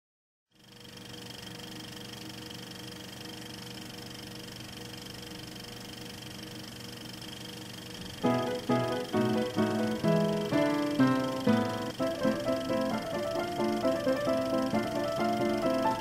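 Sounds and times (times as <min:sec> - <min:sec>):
mechanical hum with hiss: 0:00.6 - 0:16.0
fixed tones: 0:08.2 - 0:16.0
music with plucked notes: 0:08.2 - 0:16.0.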